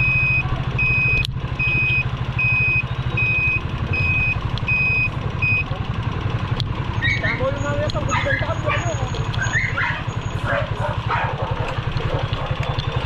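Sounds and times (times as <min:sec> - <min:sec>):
high electronic beep: 0:00.0 - 0:05.7
motorcycle engine running: 0:00.0 - 0:13.0.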